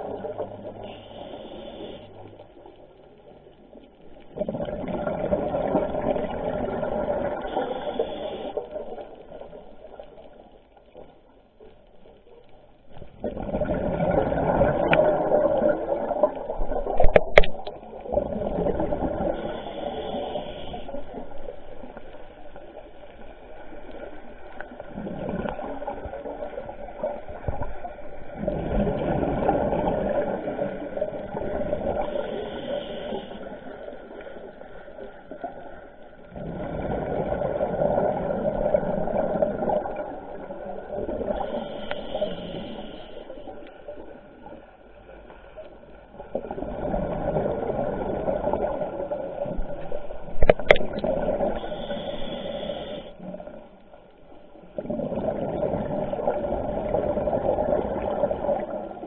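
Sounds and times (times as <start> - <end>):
bubbles rushing underwater: 4.3 - 7.9, 13.0 - 19.6, 22.6 - 32.2, 36.3 - 41.6, 46.2 - 51.8, 54.7 - 59.0.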